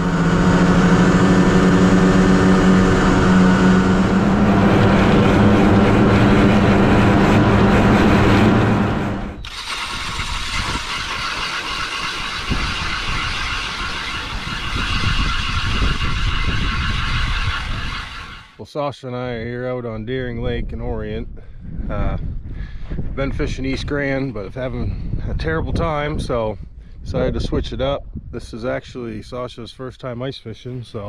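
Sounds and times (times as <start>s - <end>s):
ice auger drilling: 0.0s - 18.6s
vehicle engine humming: 0.0s - 18.6s.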